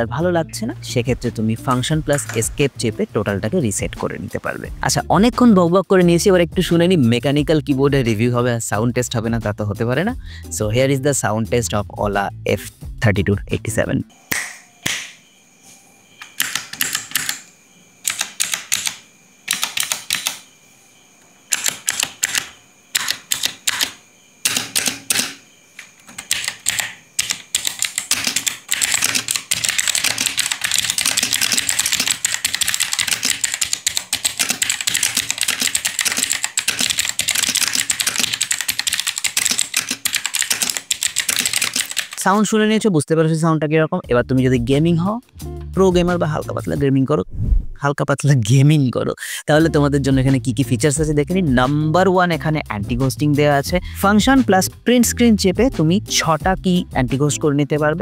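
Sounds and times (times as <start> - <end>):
mechanical keyboard typing: 16.2 - 20.4, 21.5 - 25.4, 26.1 - 42.4.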